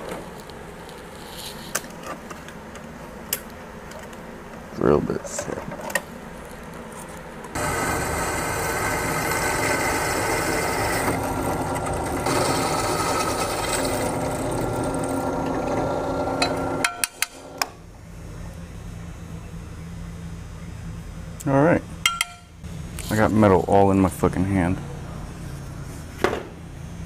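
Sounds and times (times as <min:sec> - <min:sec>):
drill press cutting steel: 0:07.6 - 0:17.7.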